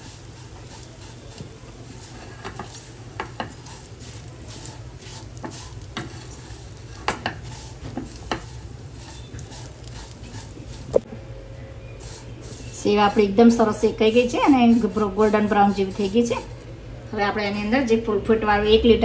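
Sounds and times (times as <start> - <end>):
spatula scraping a pan: 0.0 - 10.9, 12.0 - 16.5
steady low hum: 0.0 - 17.8.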